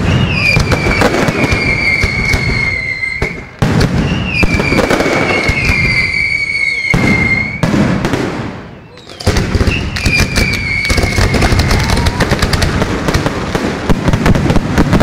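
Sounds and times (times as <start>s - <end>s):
firework high whistle: 0.0s - 7.8s, 8.6s - 12.3s
fireworks bangs and crackling: 0.0s - 15.0s.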